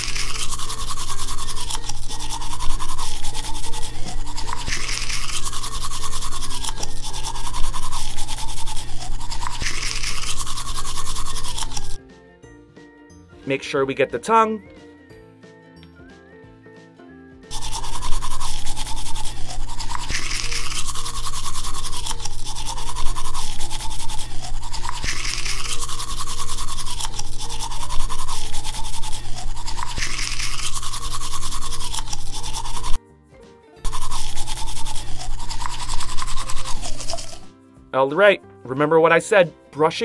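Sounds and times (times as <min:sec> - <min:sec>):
electric toothbrush buzzing: 0:00.0 - 0:12.0, 0:17.5 - 0:33.0, 0:33.8 - 0:37.5.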